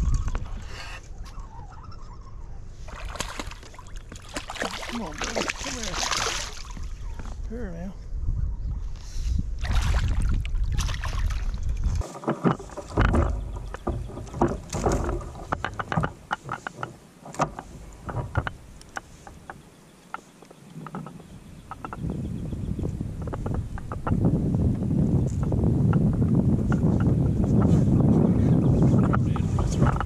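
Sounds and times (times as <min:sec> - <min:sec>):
wind rumble on microphone: 0:00.0 - 0:19.6, 0:20.6 - 0:30.0
fish and tackle knocking in kayak: 0:12.0 - 0:19.6, 0:20.8 - 0:24.7.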